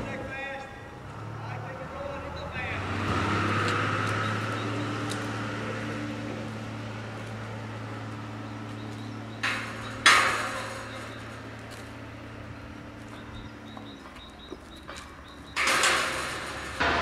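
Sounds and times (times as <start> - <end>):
metal gate clanging: 3.5 - 17.0
metal gate knocking: 8.3 - 14.1, 14.8 - 17.0.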